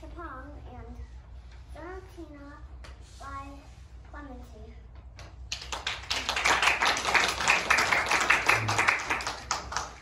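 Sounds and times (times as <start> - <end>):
audience applauding: 5.5 - 10.0.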